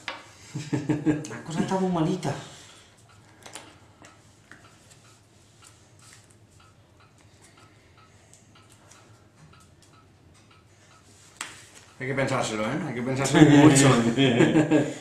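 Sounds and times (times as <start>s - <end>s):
faint regular ticking: 2.6s - 12.7s
trading cards sliding and tapping: 11.0s - 12.0s.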